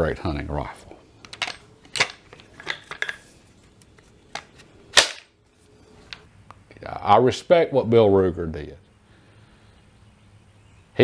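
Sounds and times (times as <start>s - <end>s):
rifle parts clicking and knocking: 1.2s - 5.3s.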